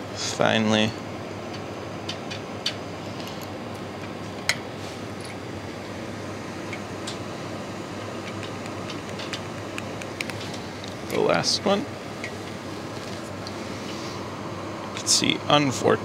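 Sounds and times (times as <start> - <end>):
steady room hum: 0.0 - 16.0
lab equipment clicks and taps: 8.2 - 11.2.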